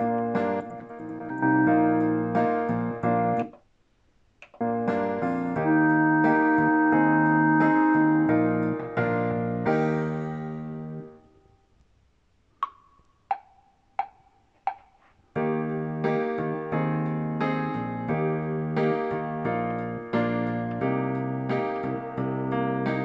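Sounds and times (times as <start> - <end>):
accompaniment music chords: 0.0 - 3.5, 4.6 - 11.2.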